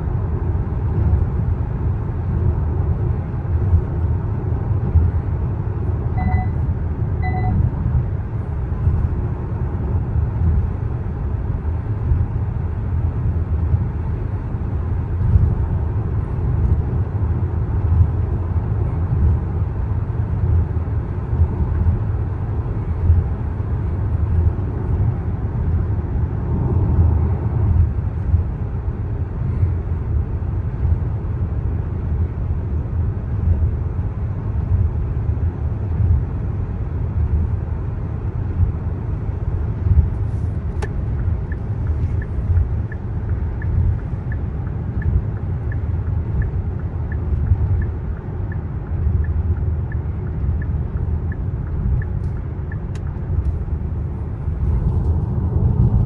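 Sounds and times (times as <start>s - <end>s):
road and tyre rumble in car: 0.0s - 56.0s
short electronic beeps: 6.1s - 7.6s.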